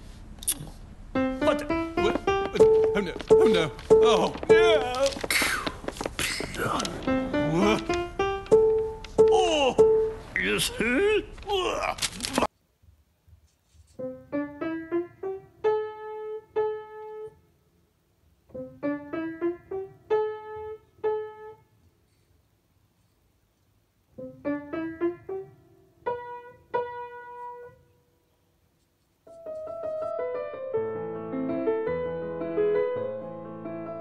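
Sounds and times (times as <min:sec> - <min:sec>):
piano notes: 0:01.0 - 0:11.4, 0:14.0 - 0:17.4, 0:18.5 - 0:21.7, 0:24.2 - 0:27.9, 0:29.3 - 0:34.0.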